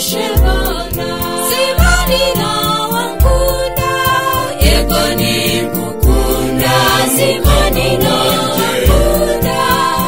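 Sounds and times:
gospel singing: 0.0 - 10.0
steady drum beat: 0.0 - 10.0
deep bass hits: 4.6 - 10.0.

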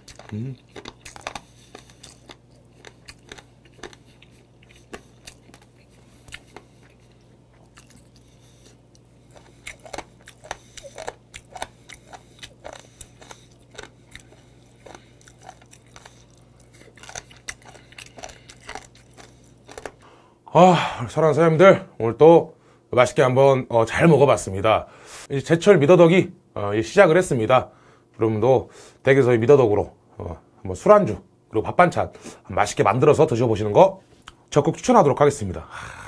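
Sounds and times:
mouth clicks and crunches: 0.0 - 20.0
close-miked chewing: 0.0 - 20.1.

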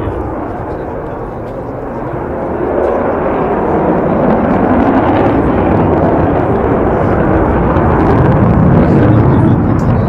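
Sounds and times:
jet bomber roaring overhead: 0.0 - 10.0.

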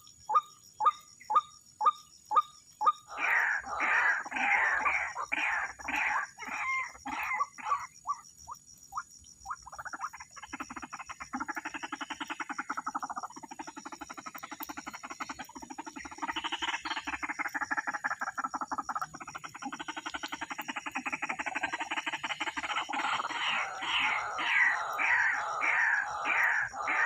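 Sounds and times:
waterhens calling: 3.0 - 7.9, 19.8 - 27.0.

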